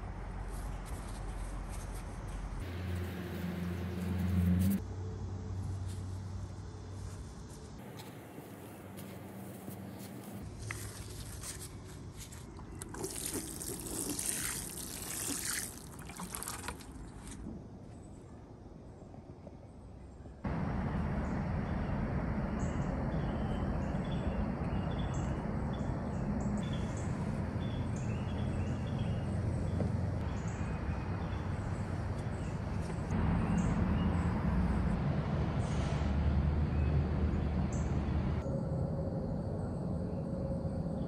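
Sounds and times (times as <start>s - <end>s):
small birds chirping: 22.6s - 34.3s.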